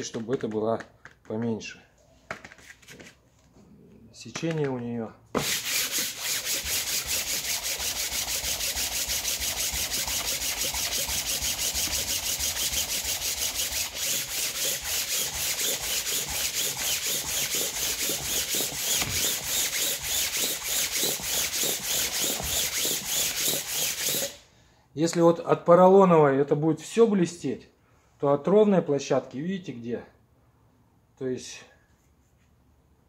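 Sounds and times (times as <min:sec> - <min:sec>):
sandpaper rubbing on metal: 0:05.4 - 0:24.4.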